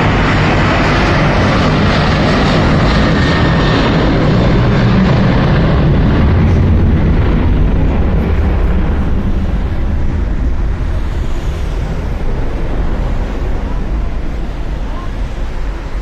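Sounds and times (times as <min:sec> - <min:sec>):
jet engines at takeoff: 0:00.0 - 0:16.0.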